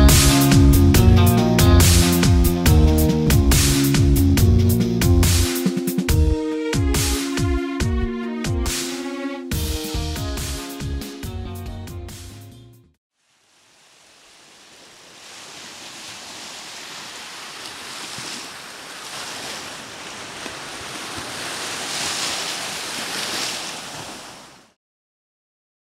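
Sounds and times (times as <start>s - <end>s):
waves washing up a beach: 13.2s - 24.8s.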